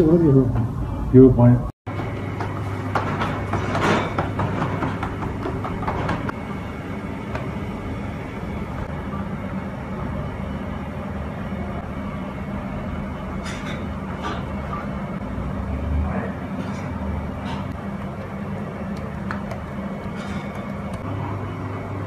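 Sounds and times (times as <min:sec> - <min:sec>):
low mechanical hum: 0:00.0 - 0:22.0.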